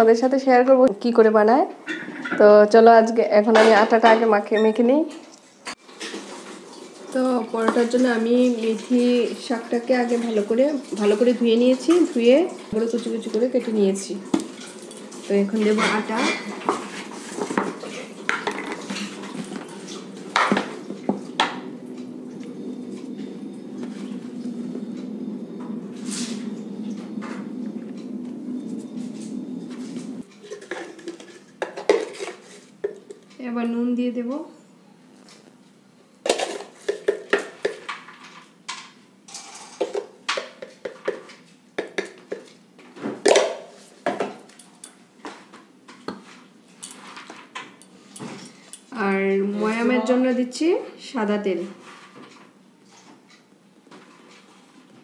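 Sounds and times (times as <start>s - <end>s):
low hum: 20.6s - 30.3s.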